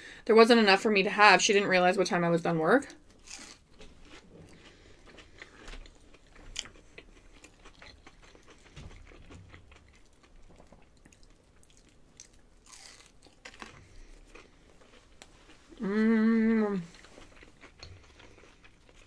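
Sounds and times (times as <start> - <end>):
chewing crunchy fried chicken: 2.9 - 15.9, 16.8 - 19.0.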